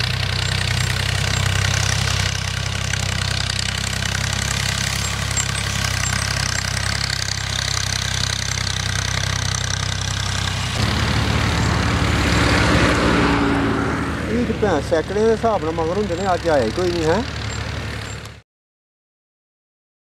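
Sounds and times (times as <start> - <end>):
tractor engine droning: 0.0 - 18.4.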